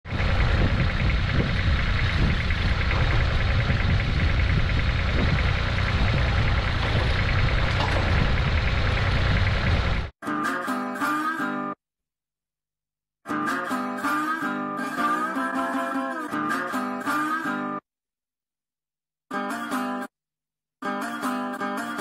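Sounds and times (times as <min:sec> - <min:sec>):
garden tractor engine idling: 0:00.0 - 0:10.1.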